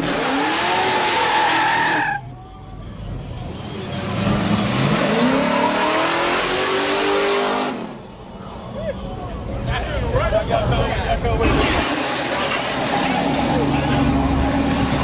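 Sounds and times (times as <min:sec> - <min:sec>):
car engine revving: 0:00.0 - 0:02.2, 0:03.8 - 0:08.1, 0:11.3 - 0:15.0
tyres squealing and skidding: 0:00.0 - 0:02.4, 0:04.0 - 0:07.8.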